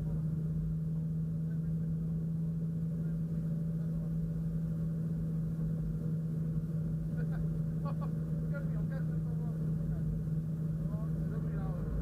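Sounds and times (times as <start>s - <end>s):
car engine running inside cabin: 0.0s - 12.0s
low road rumble: 0.0s - 12.0s.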